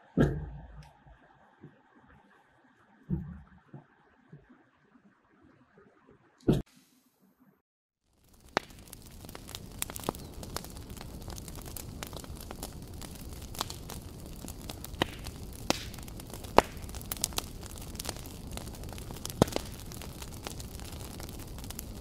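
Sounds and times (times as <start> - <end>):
wood fire crackling and popping: 8.0 - 22.0.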